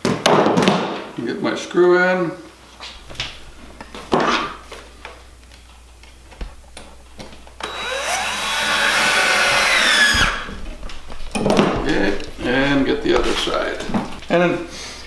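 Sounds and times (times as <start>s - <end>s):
cordless drill motor whining: 7.6s - 10.5s.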